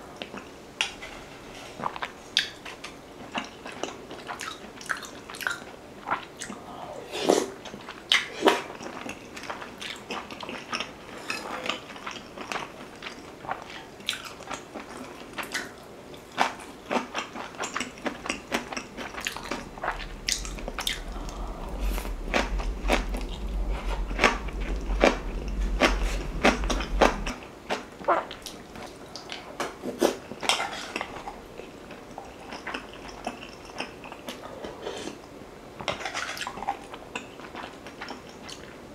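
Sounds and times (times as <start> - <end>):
chewing with wet mouth clicks: 1.9 - 6.6, 11.6 - 21.5, 30.9 - 34.4
low hum: 18.7 - 28.9.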